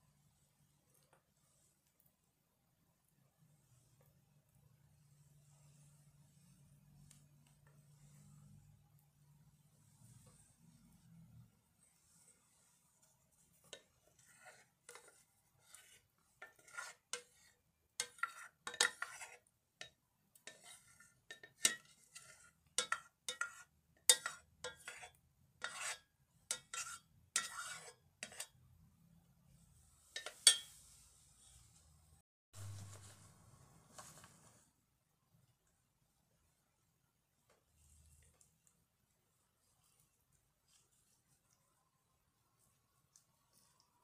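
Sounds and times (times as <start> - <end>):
metal spoon scraping a metal pot: 13.6 - 28.6, 30.0 - 31.0.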